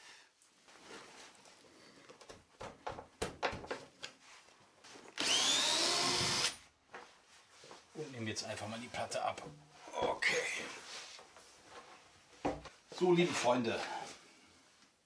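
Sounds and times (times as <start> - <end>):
cordless drill motor running: 5.2 - 6.6.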